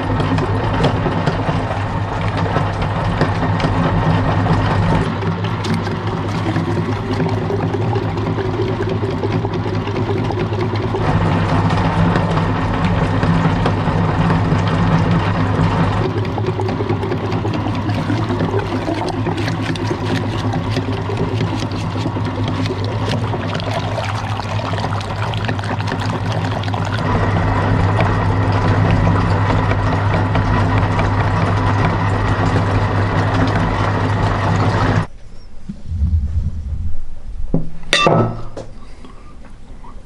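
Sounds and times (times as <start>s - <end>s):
meat grinder drone: 0.0s - 35.1s
wet squelching and trickling: 17.6s - 26.8s.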